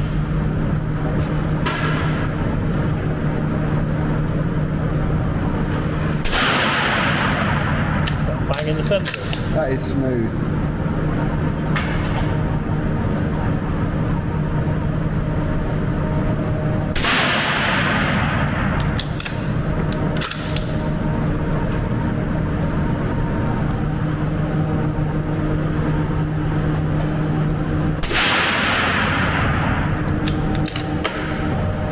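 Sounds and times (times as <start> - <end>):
steady low hum: 0.0 - 31.9
rifle bolt metallic clicks: 30.2 - 30.9.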